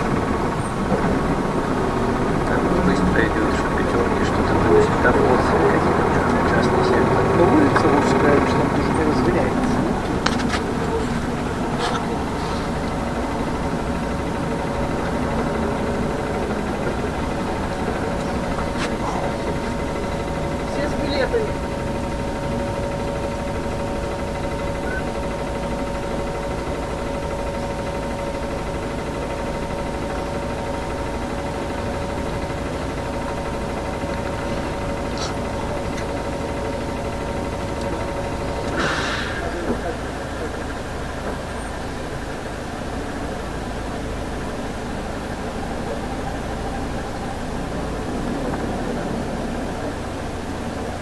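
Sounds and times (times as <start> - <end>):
bus engine running: 0.0 - 51.0.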